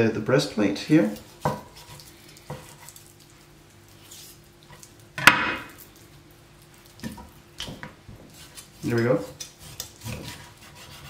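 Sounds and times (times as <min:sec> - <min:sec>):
knife cutting raw chicken: 0:07.0 - 0:11.0.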